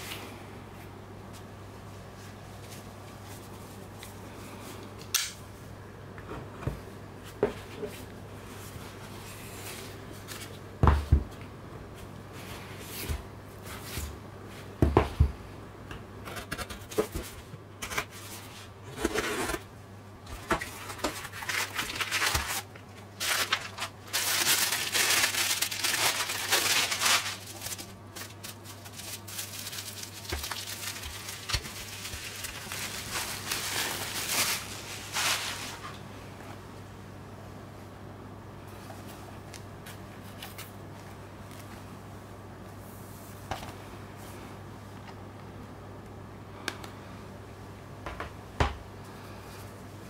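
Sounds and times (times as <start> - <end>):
steady low hum: 0.0 - 50.0
cardboard scraping and tearing: 20.6 - 35.8
tissue paper crinkling: 20.6 - 36.0.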